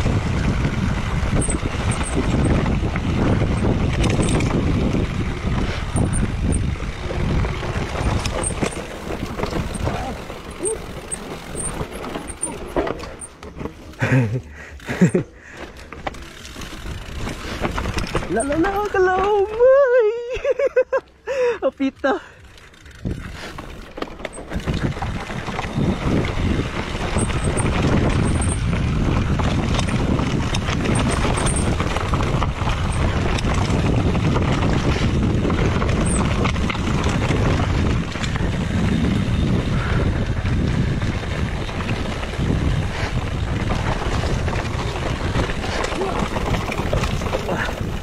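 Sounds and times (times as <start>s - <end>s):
wind buffeting microphone: 0.0s - 12.6s, 24.4s - 48.0s
bike rattling: 0.0s - 48.0s
mountain bike rumbling: 0.0s - 48.0s
tyres crunching over stones: 1.4s - 19.6s, 41.4s - 48.0s.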